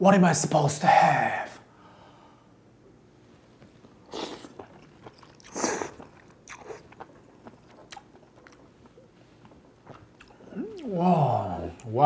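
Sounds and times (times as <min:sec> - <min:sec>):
person eating noodles noisily: 0:04.0 - 0:11.9.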